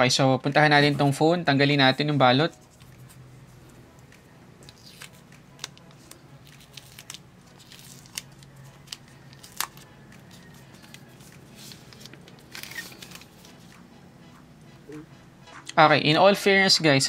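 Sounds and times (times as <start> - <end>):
plastic wrap crinkling: 4.6 - 13.6.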